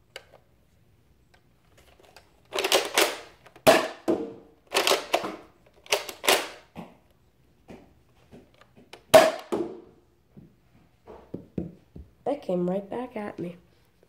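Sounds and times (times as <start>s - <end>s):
toy blaster priming clatter: 2.5s - 3.3s, 4.7s - 5.2s.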